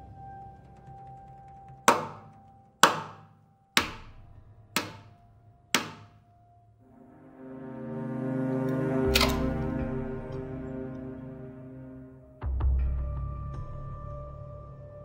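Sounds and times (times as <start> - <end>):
low musical drone: 0.0 - 2.7, 6.3 - 15.0.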